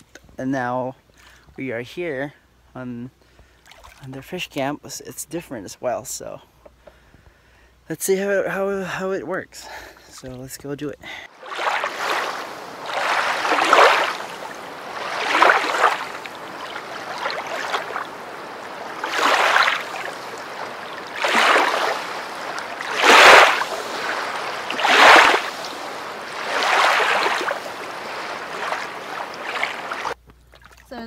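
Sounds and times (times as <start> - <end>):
river water lapping shore: 3.5 - 4.2, 11.2 - 31.0.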